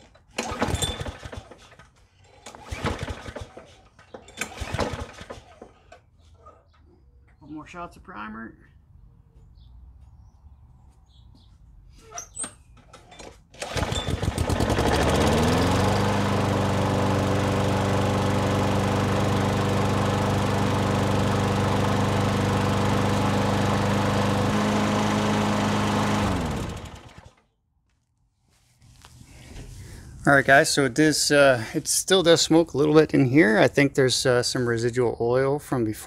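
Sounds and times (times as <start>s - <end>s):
push mower engine running: 0.4s - 5.9s, 13.6s - 27.4s.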